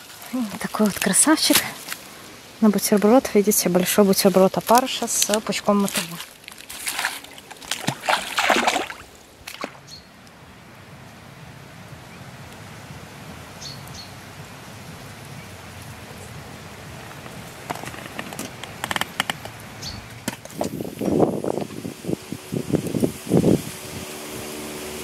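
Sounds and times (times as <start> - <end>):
steady low hiss: 0.0 - 25.0
sharp clicks: 17.8 - 20.8.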